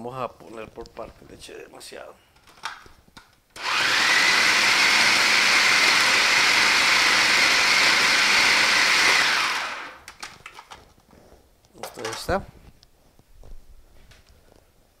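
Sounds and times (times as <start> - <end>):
food processor motor whine: 3.6 - 10.1.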